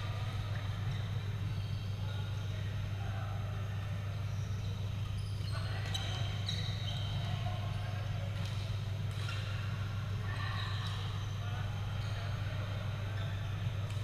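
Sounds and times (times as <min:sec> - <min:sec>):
low hum in hall: 0:00.0 - 0:14.0.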